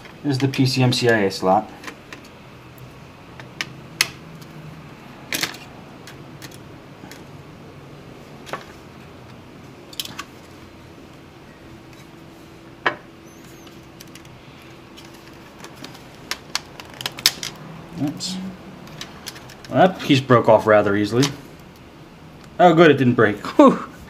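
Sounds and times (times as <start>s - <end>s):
laptop parts clicking and knocking: 12.8s - 17.6s.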